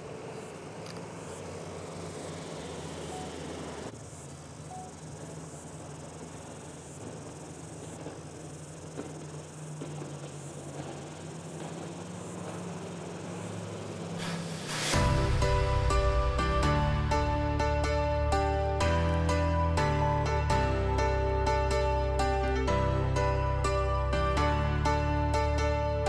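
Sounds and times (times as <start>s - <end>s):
insects chirping: 0.0s - 26.0s
rush of noise: 12.1s - 17.7s.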